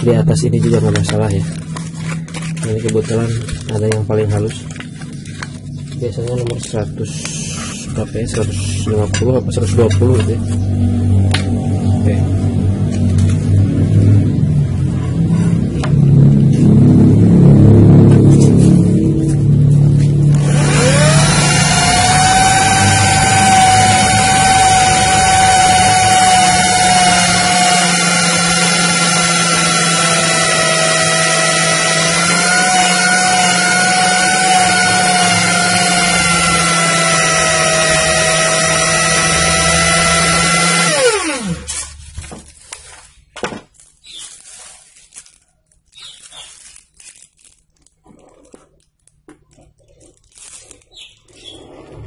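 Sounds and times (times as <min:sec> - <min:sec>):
sandpaper scraping hiss: 0:07.1 - 0:08.8
electric drill whine: 0:20.2 - 0:41.9.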